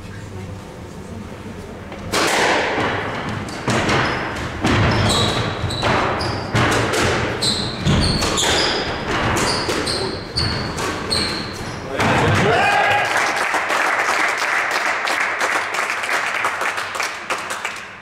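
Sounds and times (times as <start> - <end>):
squash ball hitting rackets and walls: 2.0 - 12.8
shoes squeaking on wooden floor: 3.2 - 12.0.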